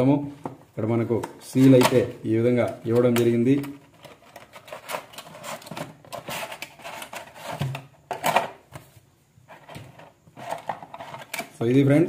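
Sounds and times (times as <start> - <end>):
packaging rustling and scraping: 2.7 - 11.6.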